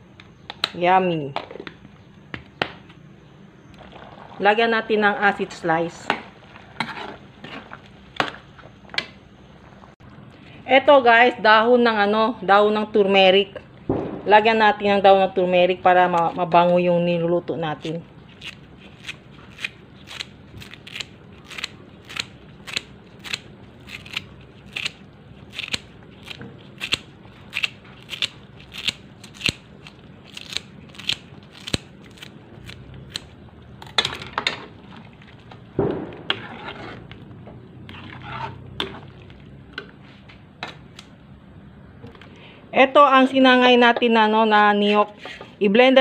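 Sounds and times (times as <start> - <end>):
spoon scraping in metal wok: 5.9 - 8.8, 36.2 - 39.2
scissors snipping leaves: 17.8 - 33.3.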